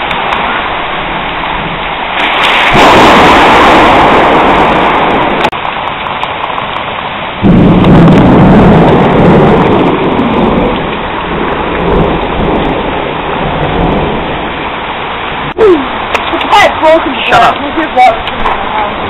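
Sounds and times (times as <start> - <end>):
heavy rain and hail: 0.0 - 19.0
deep rumble: 2.7 - 5.6, 7.4 - 14.6.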